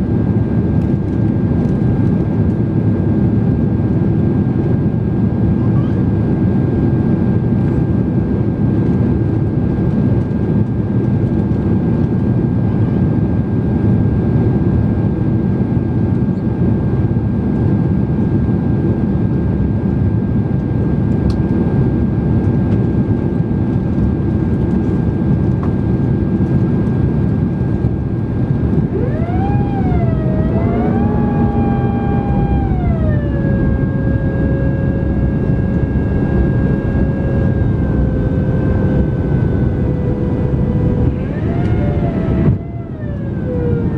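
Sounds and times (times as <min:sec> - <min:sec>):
airplane cabin roar: 0:00.0 - 0:43.9
multi-tone whine: 0:19.2 - 0:43.9.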